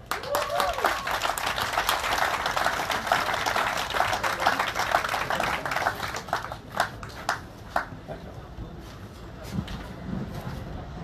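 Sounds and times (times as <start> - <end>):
crowd applauding: 0.0 - 7.9.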